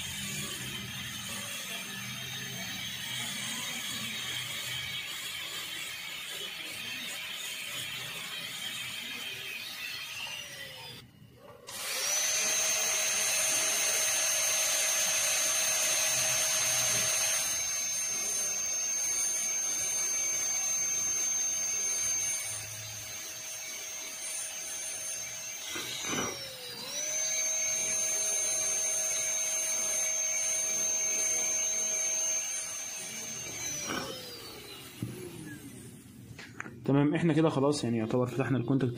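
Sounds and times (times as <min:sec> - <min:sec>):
dental drill whining: 0:00.0 - 0:36.5.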